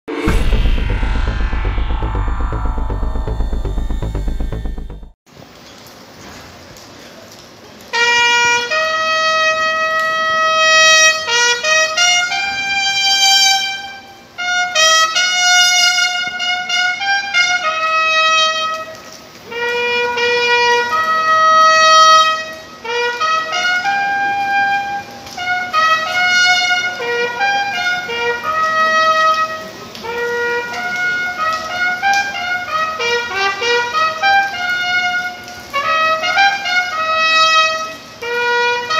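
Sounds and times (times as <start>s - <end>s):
solo bugle melody: 19.5s - 38.9s.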